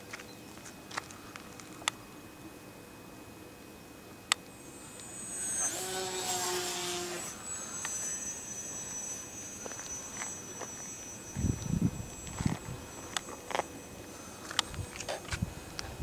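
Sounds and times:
model airplane motor whine: 4.4 - 16.0.

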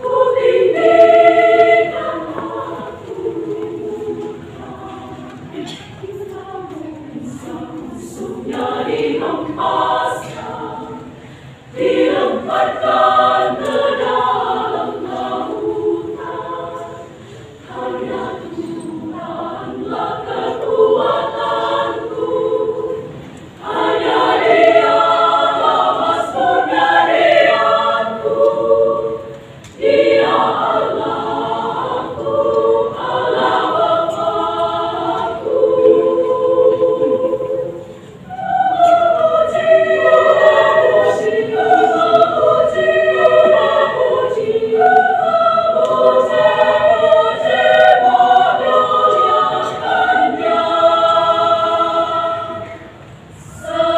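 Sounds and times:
women's choir singing: 0.0 - 53.9.

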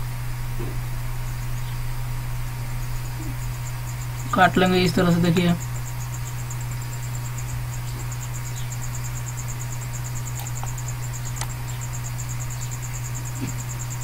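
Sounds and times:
low hum: 0.0 - 14.0
high-pitched pulsing chirp: 2.8 - 14.0.

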